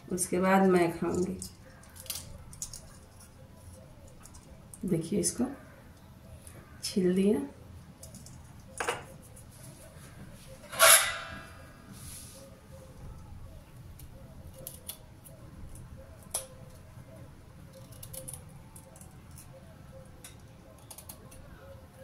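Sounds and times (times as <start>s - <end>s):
beetroot skin being peeled: 17.6s - 19.5s.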